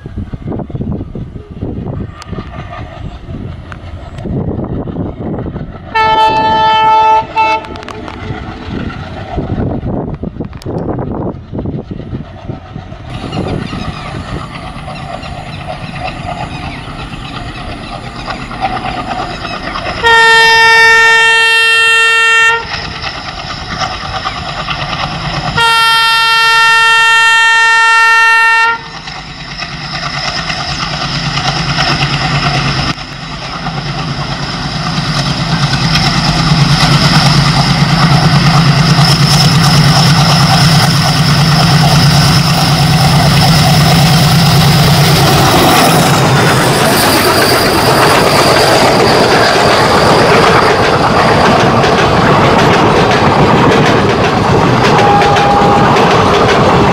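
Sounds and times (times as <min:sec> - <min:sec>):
locomotive engine rumble: 0:00.0 - 0:56.9
locomotive horn blasts: 0:05.9 - 0:08.0, 0:20.0 - 0:22.7, 0:25.6 - 0:28.9, 0:54.9 - 0:56.0.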